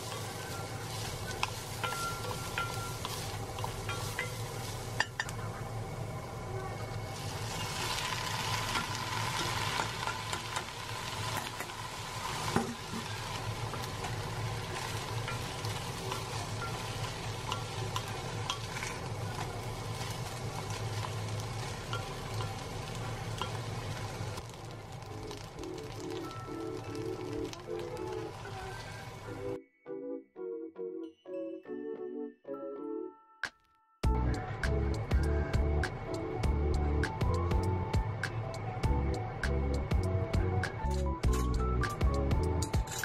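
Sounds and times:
onion and rice sizzling in pot: 0.0s - 29.6s.

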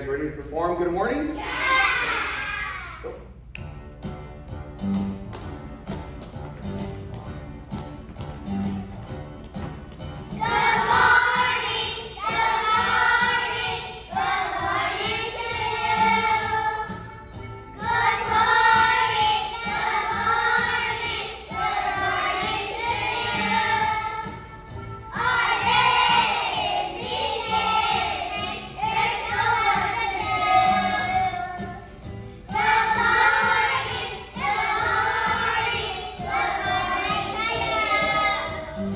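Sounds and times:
backing music: 0.0s - 38.9s
young children singing: 1.3s - 3.4s, 10.3s - 38.9s.

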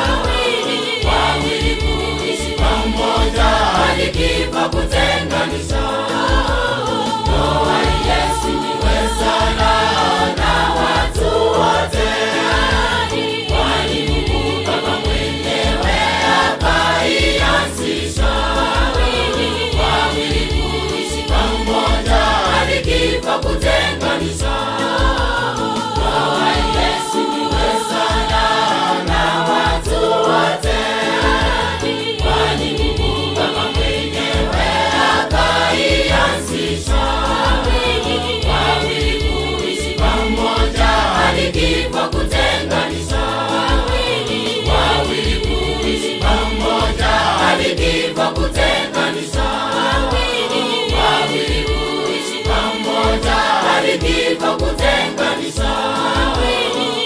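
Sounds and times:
steady bass beat: 0.0s - 48.8s
choir singing in harmony: 0.0s - 57.0s.

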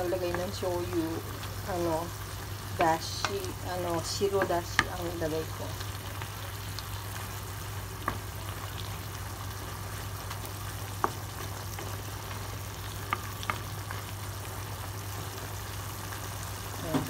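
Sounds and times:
food sizzling in a frying pan: 0.0s - 17.0s
wooden spatula clicking on pan: 2.8s - 3.6s.

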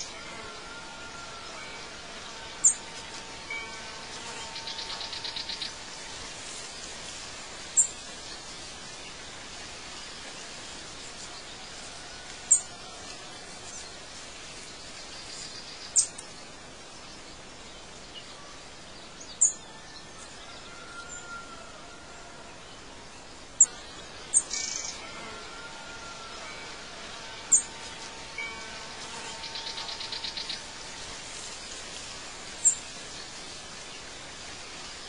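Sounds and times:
songbirds chirping: 0.0s - 35.0s
steady background hiss: 0.0s - 35.0s
bird trill: 23.6s - 25.0s, 27.5s - 27.8s.

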